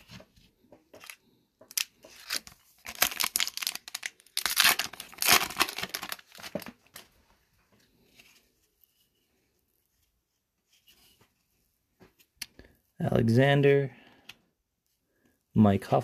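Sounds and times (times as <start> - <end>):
foil wrapper tearing and crinkling: 1.0 - 7.1.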